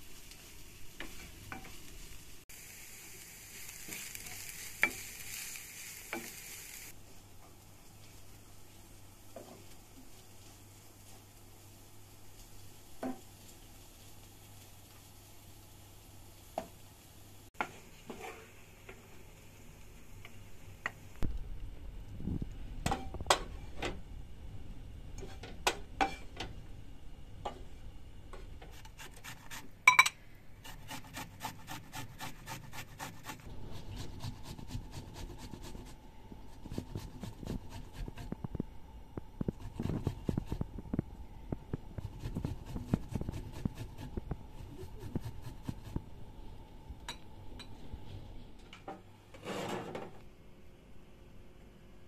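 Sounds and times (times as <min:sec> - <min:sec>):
dishes and pans clinking: 0:29.9 - 0:30.2.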